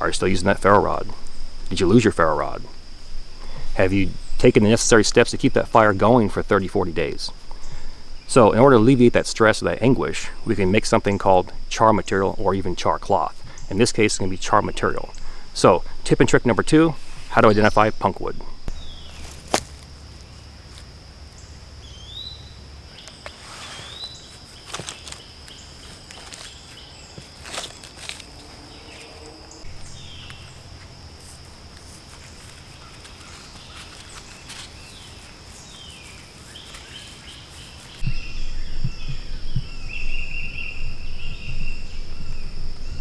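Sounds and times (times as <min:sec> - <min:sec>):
insect drone: 0:00.0 - 0:43.0
bird singing trills: 0:18.6 - 0:19.3, 0:21.4 - 0:27.2, 0:28.4 - 0:30.8, 0:32.7 - 0:43.0
bird chirps: 0:18.6 - 0:19.4, 0:21.4 - 0:27.2, 0:28.4 - 0:30.8, 0:32.5 - 0:43.0
rotten wood snapping: 0:19.2 - 0:19.9
wind buffeting microphone: 0:38.0 - 0:43.0.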